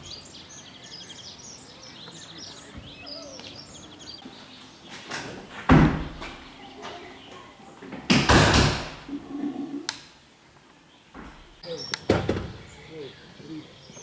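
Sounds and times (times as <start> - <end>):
door banging: 5.1 - 6.5, 8.0 - 9.1, 11.2 - 12.7.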